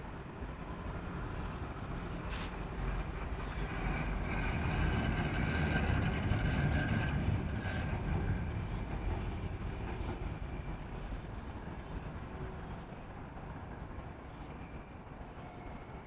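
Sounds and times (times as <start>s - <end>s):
brief hiss: 2.3s - 2.6s.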